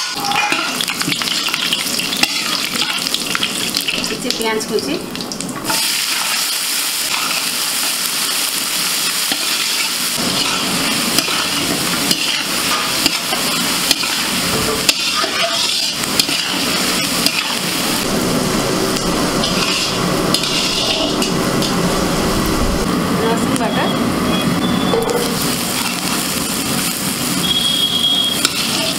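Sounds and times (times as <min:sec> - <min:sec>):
metal spatula scraping pan: 0:00.0 - 0:01.6, 0:09.3 - 0:17.8, 0:19.4 - 0:21.8, 0:25.3 - 0:26.3, 0:28.2 - 0:28.9
onions sizzling in oil: 0:00.0 - 0:22.6, 0:25.2 - 0:28.9.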